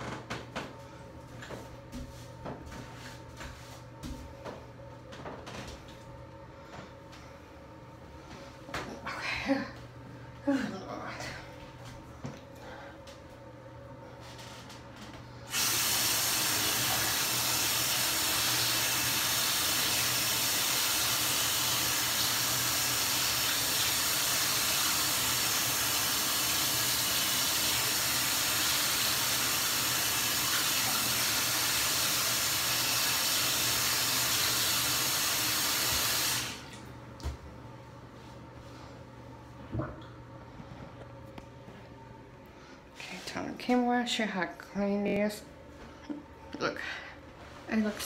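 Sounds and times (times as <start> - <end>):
water running into bathtub: 15.0 - 37.3.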